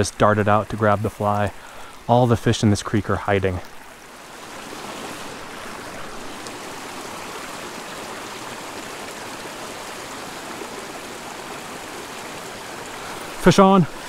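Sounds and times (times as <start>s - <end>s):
creek water rushing over rocks: 0.0s - 14.0s.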